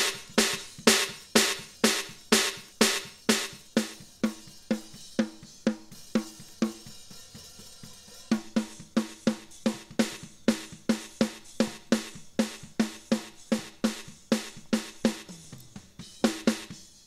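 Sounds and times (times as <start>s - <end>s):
snare drum hits: 0.0s - 4.0s
drum kit playing: 0.0s - 17.0s.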